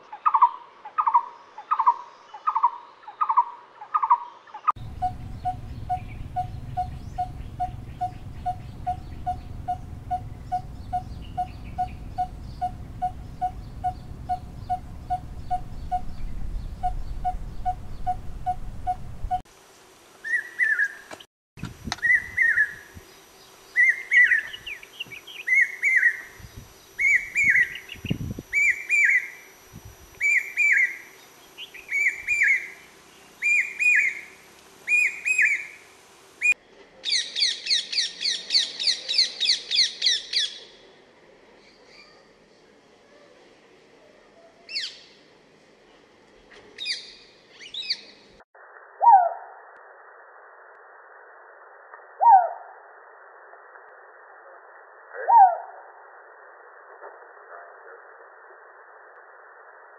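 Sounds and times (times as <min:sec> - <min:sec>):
bird calling low notes: 0:04.8 - 0:19.4
bird high repeated call: 0:04.8 - 0:19.4, 0:27.0 - 0:29.4, 0:30.2 - 0:32.8, 0:33.4 - 0:35.8.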